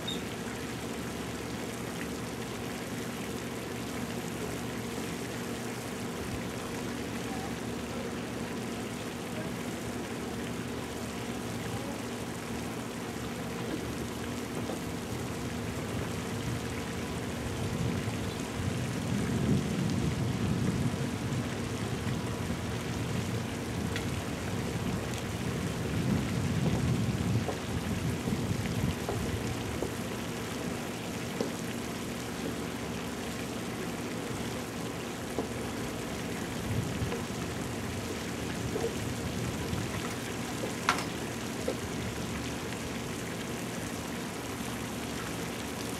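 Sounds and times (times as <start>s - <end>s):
wind buffeting microphone: 15.4s - 29.8s, 36.5s - 40.0s.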